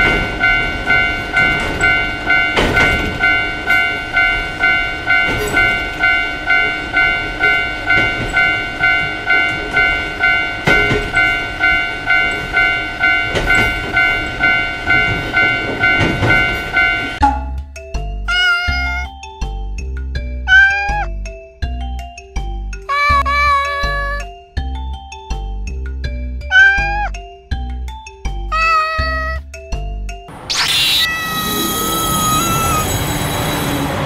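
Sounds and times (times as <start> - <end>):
train wheels knocking on rail joints: 0.0 - 17.2
railroad crossing alarm ringing: 0.0 - 17.4, 30.3 - 34.0.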